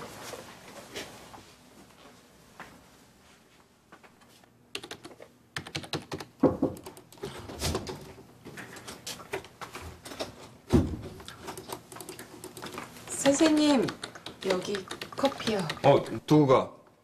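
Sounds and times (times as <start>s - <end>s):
typing on keyboard: 4.7s - 7.3s, 11.2s - 16.2s.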